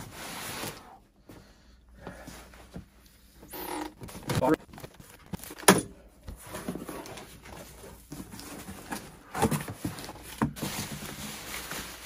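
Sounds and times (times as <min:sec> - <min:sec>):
bubble wrap crinkling: 0:09.9 - 0:12.0.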